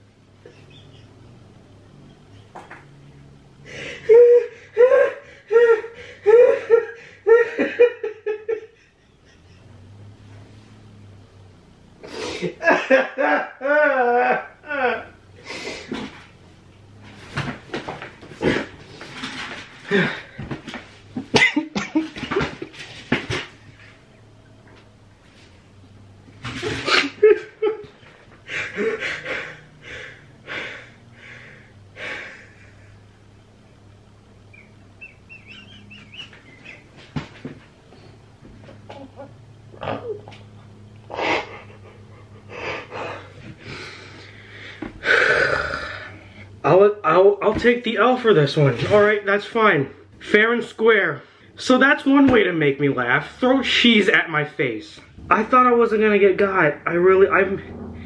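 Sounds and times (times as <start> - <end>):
person laughing: 3.9 - 9.7, 12.2 - 15.2, 19.9 - 20.4, 26.6 - 30.9, 41.1 - 43.4.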